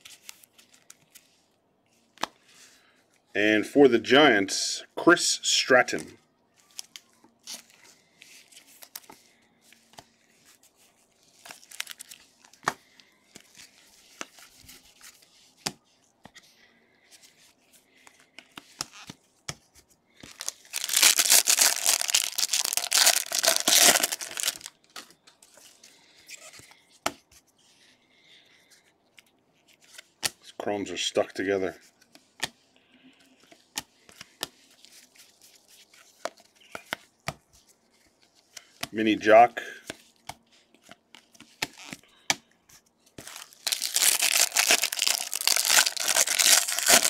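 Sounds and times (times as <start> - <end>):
baseball cards rustling and clicking: 0.0 - 2.7, 5.6 - 47.0
card pack wrapper ripping: 11.4 - 12.3, 20.2 - 24.7, 43.2 - 47.0.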